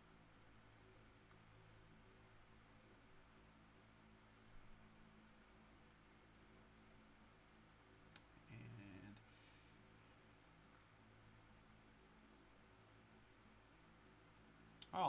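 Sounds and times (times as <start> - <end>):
faint steady hum: 0.0 - 15.0
computer mouse clicks: 0.7 - 2.0, 4.4 - 4.6, 5.8 - 6.6, 7.4 - 8.5.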